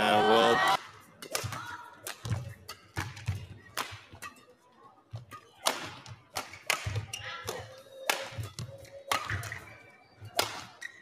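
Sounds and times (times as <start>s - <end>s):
rackets striking shuttlecock: 0.8s - 4.5s, 5.1s - 11.0s.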